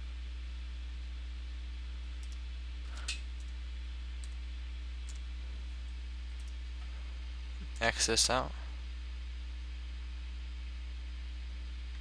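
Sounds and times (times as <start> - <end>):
low electrical hum: 0.0 - 12.0
computer mouse clicks: 2.2 - 2.4.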